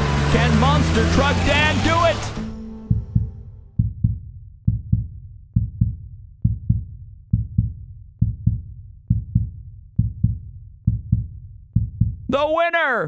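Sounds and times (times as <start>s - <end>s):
heartbeat thumps: 2.6s - 12.3s.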